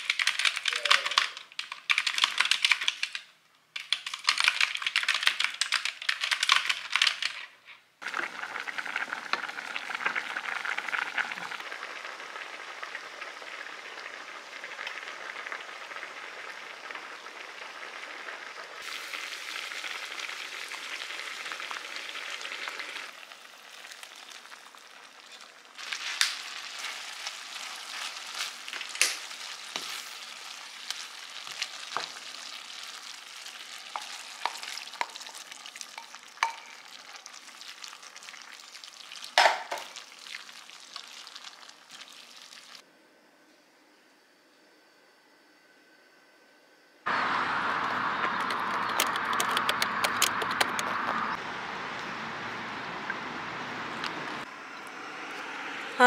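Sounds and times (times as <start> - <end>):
computer keyboard typing: 0.0 - 3.2, 3.8 - 7.4
food sizzling in a frying pan: 8.0 - 42.8.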